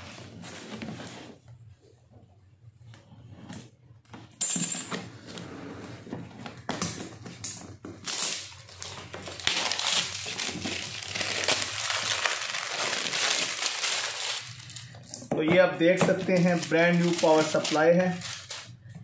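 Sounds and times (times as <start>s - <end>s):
plastic wrap tearing and crinkling: 8.0s - 15.1s, 16.0s - 18.8s.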